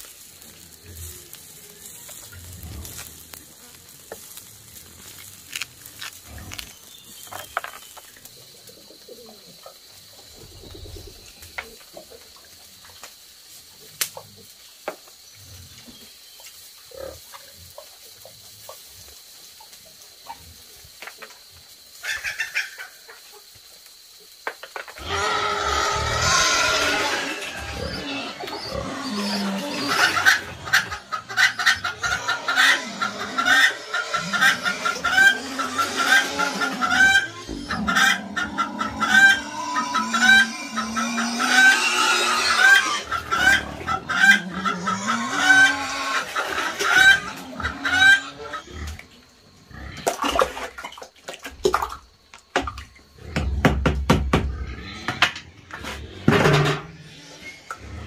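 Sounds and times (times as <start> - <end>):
chickens clucking: 0.4 - 13.2, 15.8 - 23.6, 24.5 - 50.8
knocks and clatter: 56.2 - 56.9.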